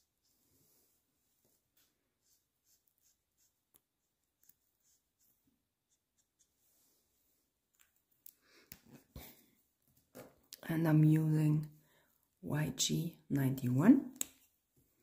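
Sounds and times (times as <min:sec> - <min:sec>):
marker strokes on paper: 0:01.4 - 0:07.2.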